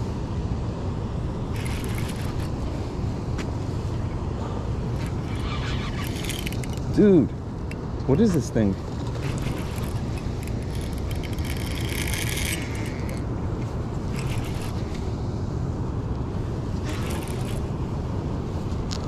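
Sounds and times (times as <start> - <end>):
fishing reel drag buzzing: 1.5 - 2.6, 5.0 - 6.9, 8.9 - 13.2, 14.0 - 15.0, 16.8 - 17.7.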